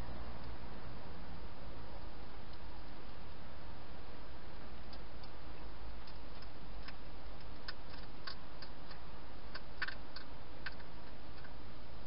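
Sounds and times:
hedgehog crunching dry food: 4.8 - 11.6.

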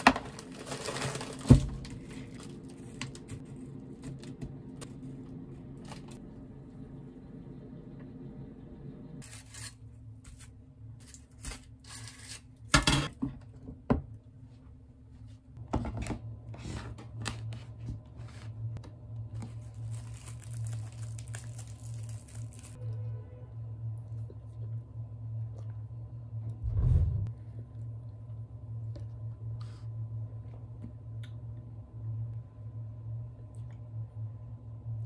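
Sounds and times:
plastic bag rustling: 0.0 - 3.7, 19.5 - 22.8
low steady hum: 0.0 - 35.0.

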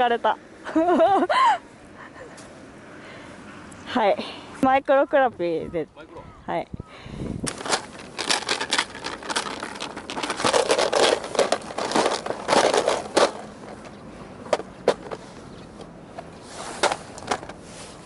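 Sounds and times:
plastic cases clattering: 7.5 - 15.2, 16.8 - 17.6.

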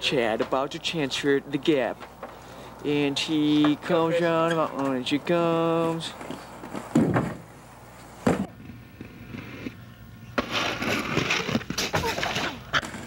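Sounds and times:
skate wheels rolling on asphalt: 3.4 - 13.0
skate wheels slamming on landing: 6.7 - 7.5, 8.2 - 9.4, 10.4 - 13.0.

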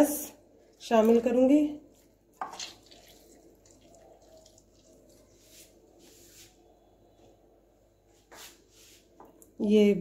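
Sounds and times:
lemon squished by hand: 2.3 - 5.1
juice dripping onto meat: 2.4 - 5.3.

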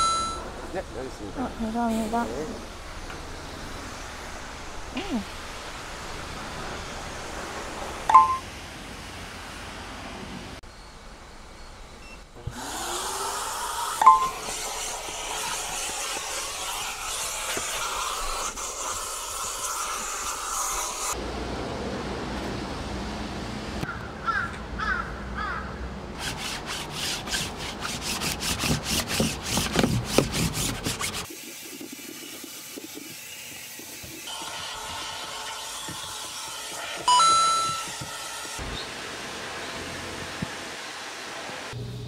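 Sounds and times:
vacuum cleaner hissing: 12.5 - 21.2, 28.6 - 41.8.

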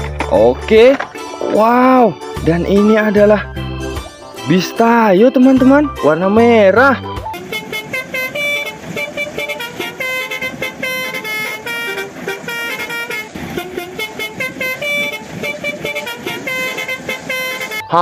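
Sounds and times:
multi-tone bus air horn tune: 7.0 - 18.0.

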